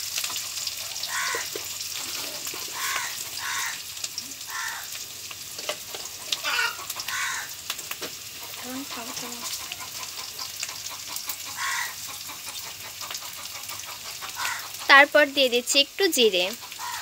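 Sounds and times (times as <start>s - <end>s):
vegetables sizzling in hot oil: 0.0s - 17.0s
spatula scraping a pan: 1.3s - 3.4s
short pitched calls: 2.7s - 3.8s.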